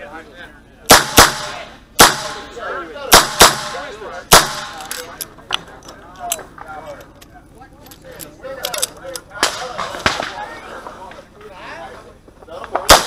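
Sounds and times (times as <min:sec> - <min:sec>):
revolver gunshots: 0:00.9 - 0:05.1.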